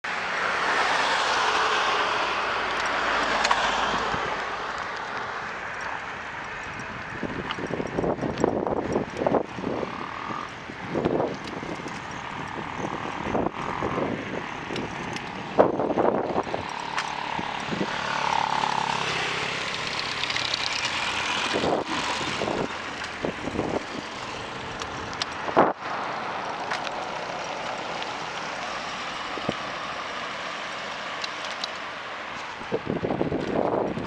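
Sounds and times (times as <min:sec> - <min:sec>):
motor vehicle passing: 0:00.1 - 0:34.0
wind buffeting microphone: 0:03.8 - 0:34.0.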